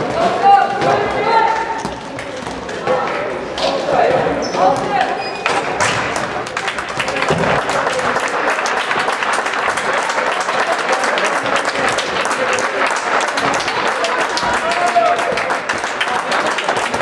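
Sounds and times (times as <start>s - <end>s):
crowd clapping: 6.0s - 17.0s.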